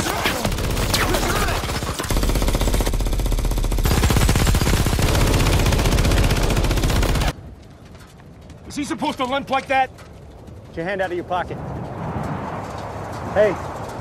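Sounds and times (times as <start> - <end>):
rapid automatic gunfire: 0.0 - 7.4.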